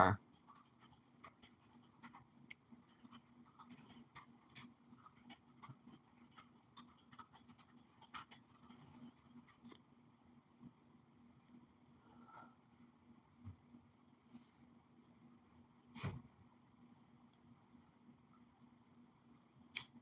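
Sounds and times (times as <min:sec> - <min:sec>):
low steady hum: 0:00.0 - 0:20.0
faint irregular clicks: 0:00.2 - 0:09.9.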